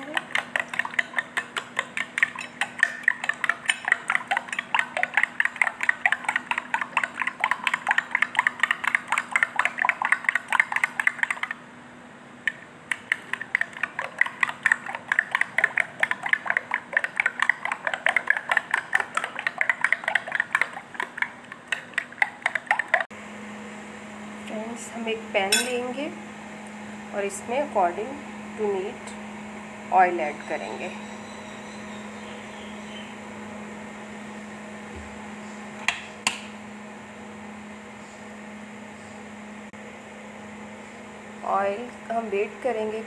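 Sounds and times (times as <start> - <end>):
spoon beating eggs in glass bowl: 0.0 - 11.6, 12.5 - 23.1.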